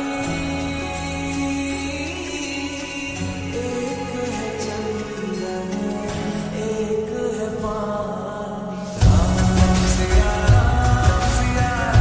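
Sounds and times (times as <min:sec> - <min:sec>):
film song with full band: 0:09.0 - 0:12.0
heavy low drum hits: 0:09.0 - 0:12.0.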